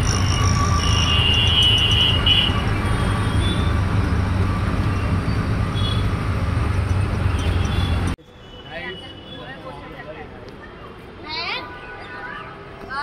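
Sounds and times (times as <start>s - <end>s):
auto-rickshaw engine humming: 0.0s - 8.2s
road noise: 0.0s - 13.0s.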